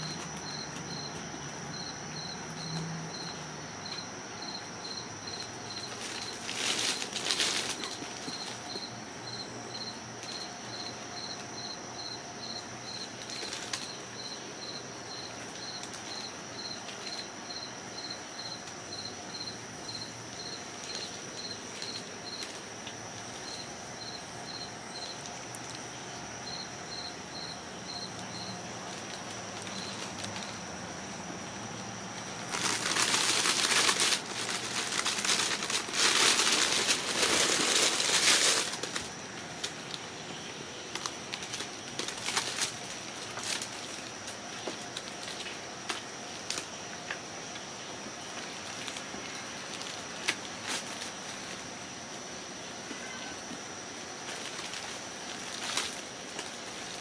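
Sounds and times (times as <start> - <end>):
crinkly fabric tunnel rustling: 4.5 - 11.4, 12.9 - 14.4, 32.2 - 40.2, 40.9 - 46.7, 48.2 - 52.2, 54.0 - 57.0
faint steady high tone: 52.9 - 53.5.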